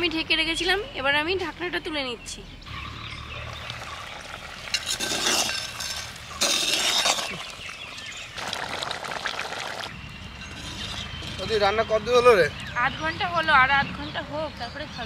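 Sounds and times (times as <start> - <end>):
metal spatula scraping clay pot: 4.6 - 8.3, 10.3 - 11.9.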